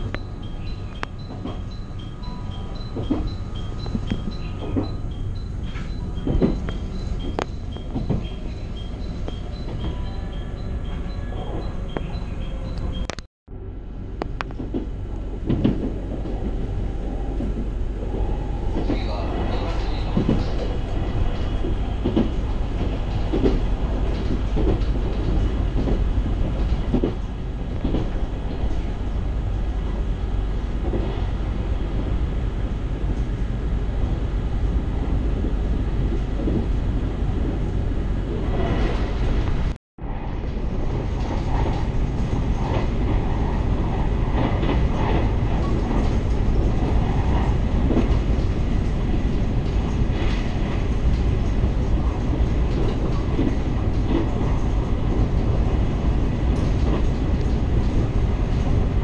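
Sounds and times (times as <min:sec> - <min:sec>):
train wheels rumbling on rail: 0:00.0 - 0:59.0
faint rail clicks: 0:41.0 - 0:59.0.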